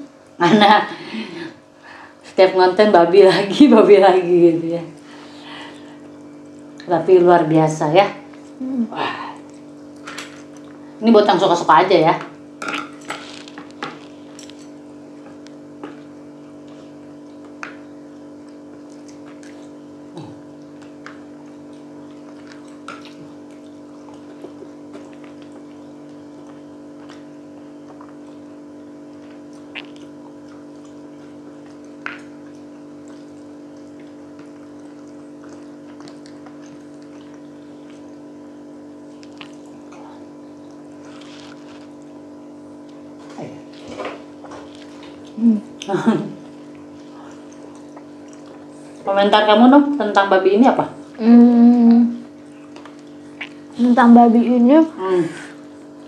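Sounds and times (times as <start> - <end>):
steady background hum: 0.0 - 56.0
chewing smacks: 12.6 - 42.2, 42.8 - 49.1, 52.2 - 53.8.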